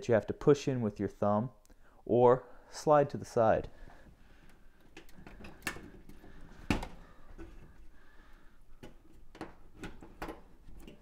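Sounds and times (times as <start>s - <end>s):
light clicks and knocks of wiring: 4.8s - 7.6s.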